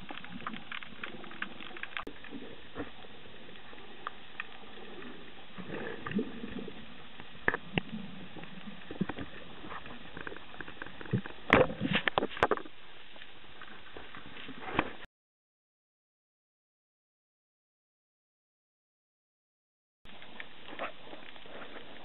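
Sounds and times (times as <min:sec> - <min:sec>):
underwater clicks and knocks: 0:07.2 - 0:12.8.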